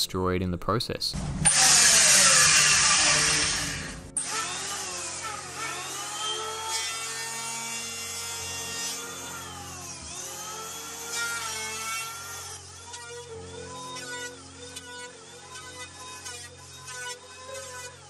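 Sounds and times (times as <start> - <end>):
power tool whining: 1.2 - 18.0.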